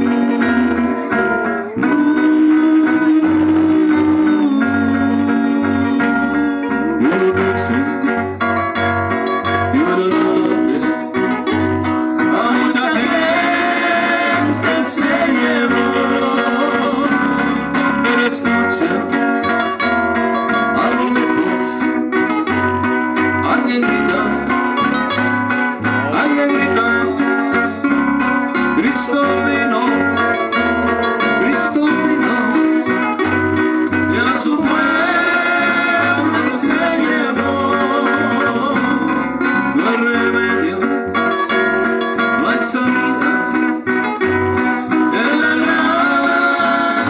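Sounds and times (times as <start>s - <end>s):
people singing: 0.0s - 8.4s, 12.2s - 19.4s, 26.0s - 27.8s, 28.6s - 33.0s, 33.9s - 43.9s, 44.8s - 47.0s
pulsing bass line: 0.0s - 47.0s
strummed acoustic guitars: 0.0s - 47.0s.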